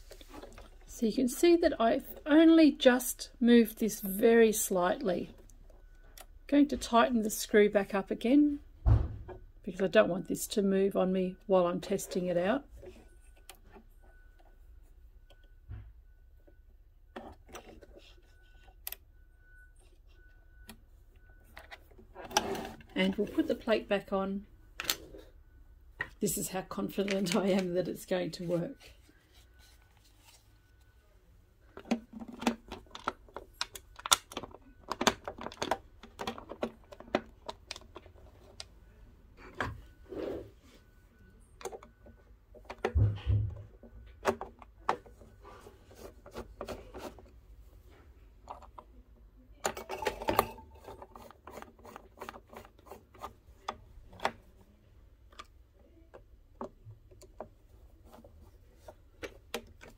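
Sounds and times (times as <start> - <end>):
plastic cover clicking and scraping: 31.7 - 38.7, 41.6 - 47.4, 49.6 - 54.6.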